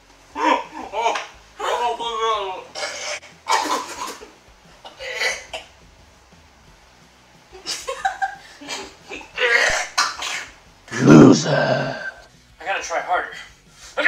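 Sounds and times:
man gagging and coughing: 4.9 - 5.7, 9.4 - 12.2
man spitting: 9.4 - 12.2
man laughing: 10.9 - 12.0.

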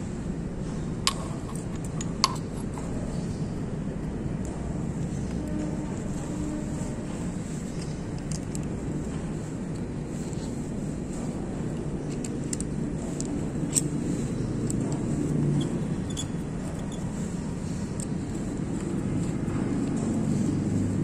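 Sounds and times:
light metallic clicks and taps: 1.1 - 3.1, 11.1 - 17.1.

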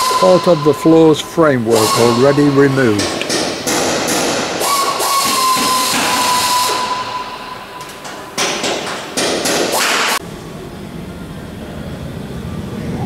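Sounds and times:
loud hissing bursts: 0.0 - 7.1
high whine: 0.0 - 13.0.

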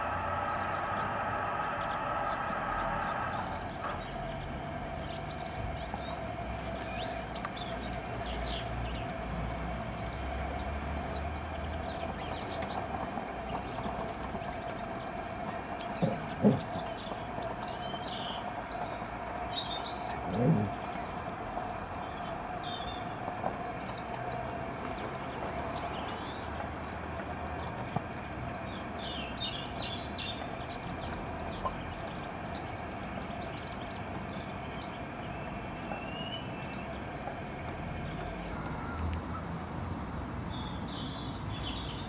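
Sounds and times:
model train whining: 0.0 - 5.6
small birds chirping: 0.0 - 42.0.

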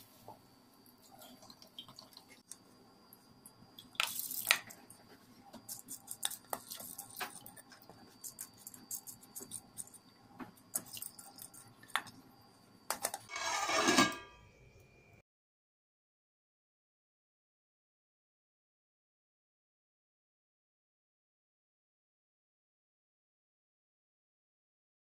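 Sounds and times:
water splashing and dripping: 1.3 - 2.4
metal lid scraping rattle: 13.3 - 14.4.

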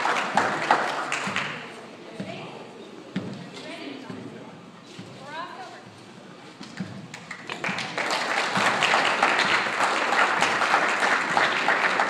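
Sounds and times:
audience applauding: 0.0 - 1.6, 7.1 - 12.0.

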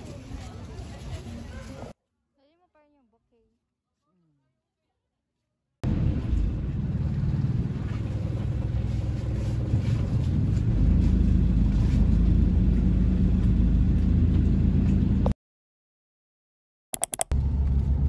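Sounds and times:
boat engine running: 5.9 - 15.3.

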